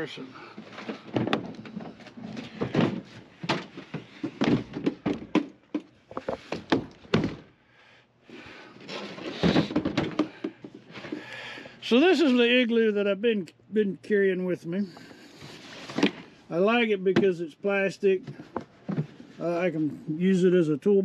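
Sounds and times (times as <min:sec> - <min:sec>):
cooler scraping: 0:00.0 - 0:05.3, 0:08.6 - 0:12.6, 0:14.9 - 0:17.4.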